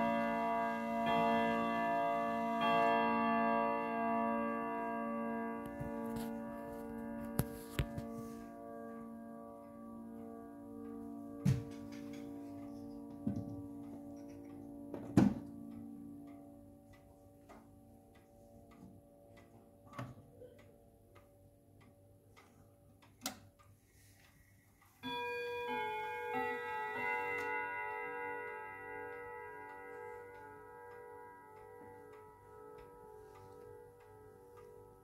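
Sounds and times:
clock chime tones: 0:00.0 - 0:17.5, 0:24.9 - 0:35.0
clock ticking: 0:00.0 - 0:35.0
chime rods ringing melody: 0:25.0 - 0:32.8.

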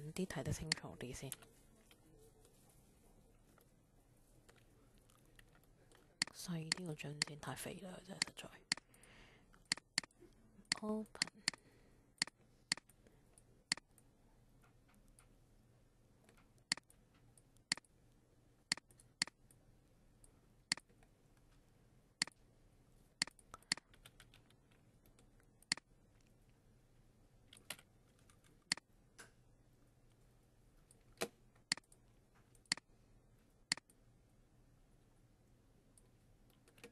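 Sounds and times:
faint low hum: 0:00.0 - 0:36.9
computer mouse clicking: 0:00.6 - 0:01.5, 0:04.5 - 0:07.4, 0:08.2 - 0:09.0, 0:09.6 - 0:11.6, 0:12.2 - 0:15.3, 0:16.3 - 0:17.9, 0:18.7 - 0:19.6, 0:20.7 - 0:21.1, 0:23.2 - 0:26.4, 0:27.5 - 0:29.4, 0:30.9 - 0:32.9, 0:33.7 - 0:34.0, 0:36.0 - 0:36.9.

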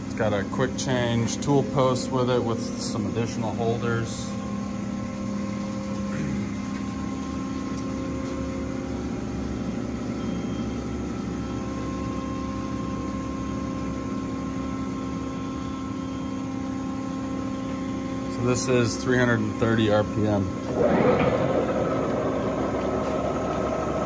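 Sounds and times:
lathe running with whine: 0:00.0 - 0:24.0.

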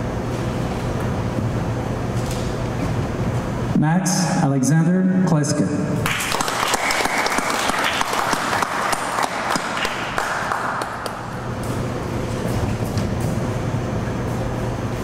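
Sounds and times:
audience applauding: 0:06.0 - 0:11.4.

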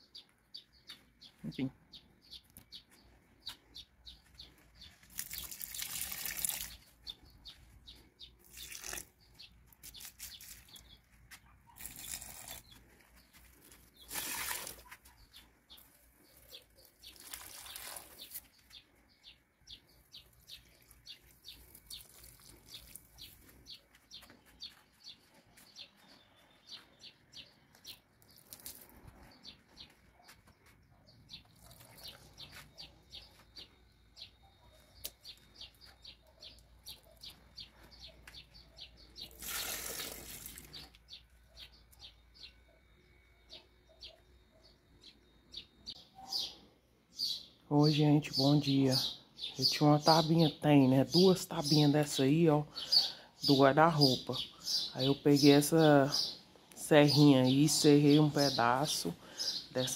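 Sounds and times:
small birds chirping: 0:00.0 - 0:59.9
water pouring onto plants: 0:05.0 - 0:07.1, 0:08.4 - 0:10.9, 0:11.8 - 0:12.9, 0:13.7 - 0:15.0, 0:16.4 - 0:18.6, 0:20.6 - 0:23.4, 0:28.3 - 0:29.0, 0:39.2 - 0:41.0.

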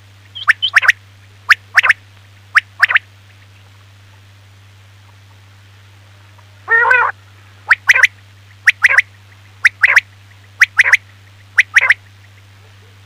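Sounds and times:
steady low hum: 0:00.0 - 0:13.0
quail call: 0:00.3 - 0:03.0, 0:06.6 - 0:13.0.

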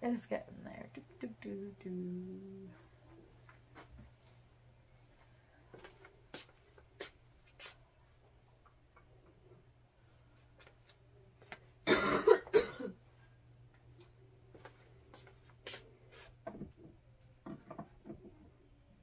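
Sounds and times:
person coughing: 0:11.9 - 0:13.0.

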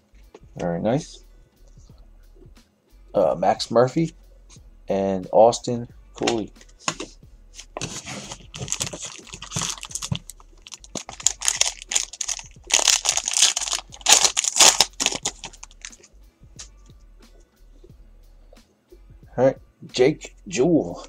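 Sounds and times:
foil wrapper tearing and crinkling: 0:07.8 - 0:16.0.

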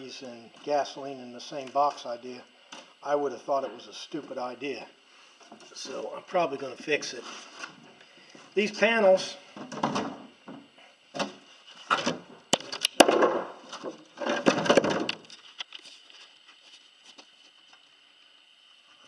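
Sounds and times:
wood knocks and scrapes: 0:09.6 - 0:15.8.

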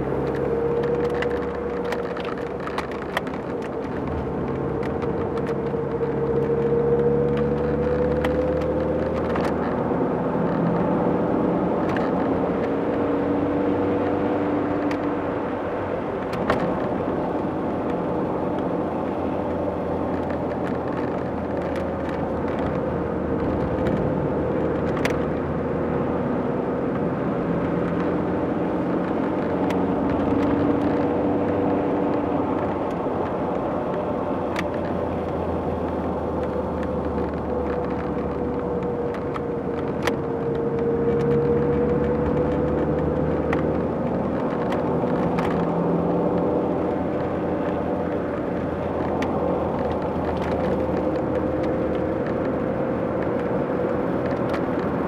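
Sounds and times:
car engine hum: 0:00.0 - 0:55.0
road and tyre noise: 0:00.0 - 0:55.0.

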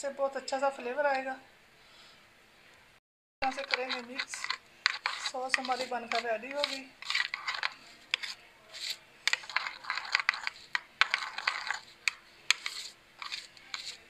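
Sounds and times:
metal spoon scraping a bowl: 0:03.4 - 0:14.0.

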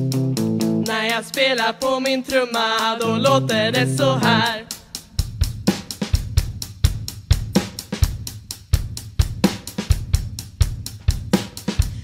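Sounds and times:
drum kit playing a beat: 0:00.0 - 0:12.0
snare and cymbal hits: 0:04.4 - 0:12.0
bass drum thumps: 0:05.2 - 0:12.0.

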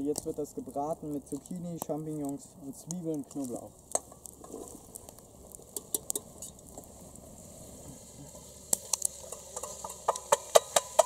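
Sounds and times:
vegetables sizzling in oil: 0:03.4 - 0:11.0.

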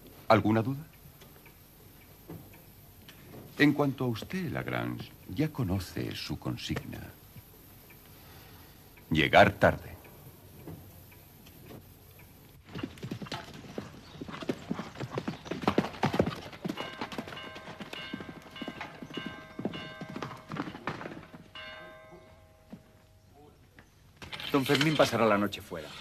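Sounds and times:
horse hoofbeats on dirt: 0:12.6 - 0:21.6.

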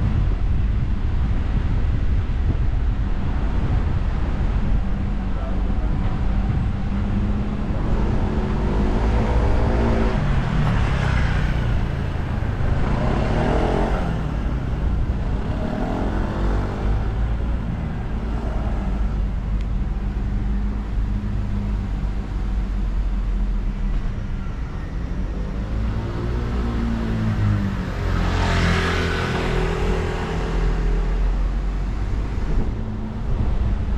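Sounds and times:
car engine and road noise: 0:00.0 - 0:33.9.

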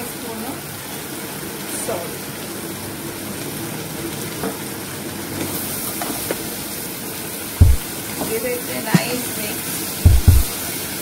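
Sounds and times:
vegetables sizzling in hot oil: 0:00.0 - 0:11.0
faint taps: 0:07.6 - 0:07.8, 0:10.1 - 0:10.5.

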